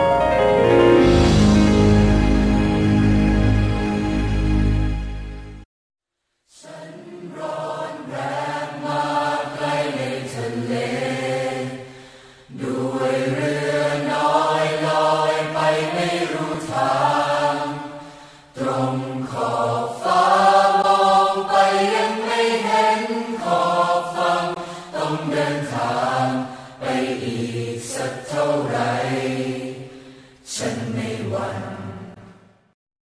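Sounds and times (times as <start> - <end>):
voices chanting: 6.6 - 11.9, 12.5 - 32.2.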